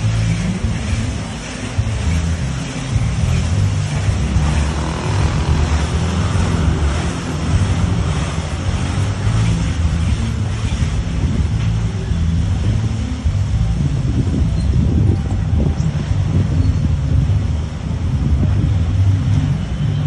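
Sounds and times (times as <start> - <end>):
rotating brushes scrubbing car: 0.0 - 14.4
car wash machine rumble: 0.0 - 20.0
water jets spraying: 0.0 - 20.0.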